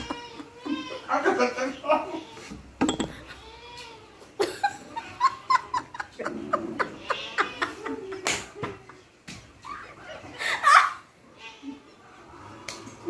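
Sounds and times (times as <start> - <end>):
people laughing: 0.0 - 2.1, 4.4 - 11.1.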